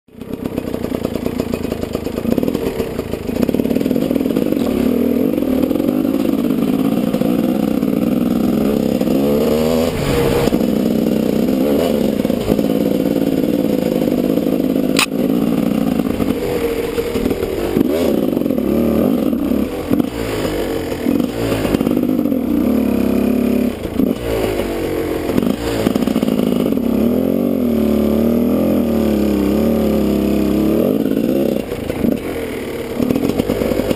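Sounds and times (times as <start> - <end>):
dirt bike engine revving: 0.1 - 33.9.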